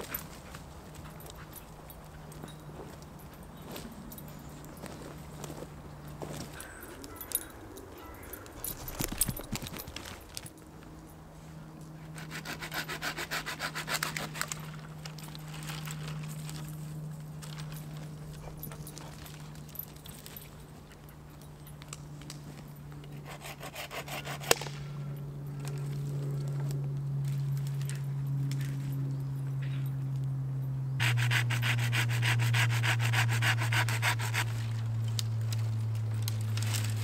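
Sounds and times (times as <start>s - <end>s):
light aircraft engine droning: 0.0s - 37.0s
hand saw rasping through branch: 12.0s - 15.8s, 23.1s - 24.9s, 31.0s - 35.3s.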